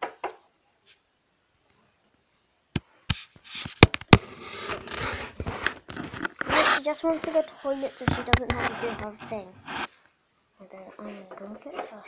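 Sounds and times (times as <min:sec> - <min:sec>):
camera handling rustling: 0:04.7 - 0:06.5.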